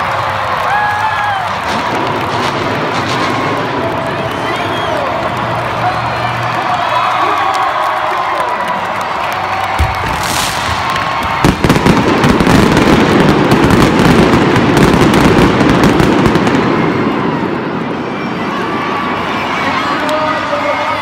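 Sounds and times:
rapid firework popping: 1.5s - 4.5s, 9.6s - 16.8s
pyrotechnic bangs: 1.6s - 4.0s, 9.7s - 17.5s.

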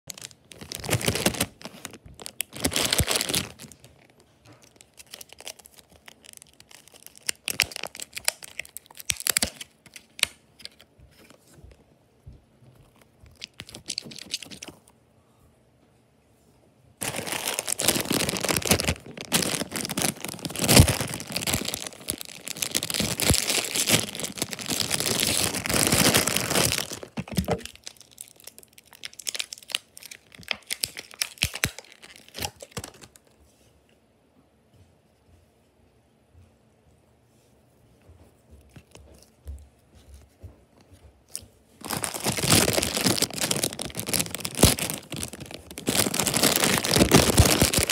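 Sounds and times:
packaging tearing and crinkling: 0.1s - 10.8s, 13.3s - 14.8s, 17.0s - 33.2s, 41.8s - 47.9s
plastic tray crackling: 0.1s - 10.9s, 17.0s - 33.2s, 41.8s - 47.9s.

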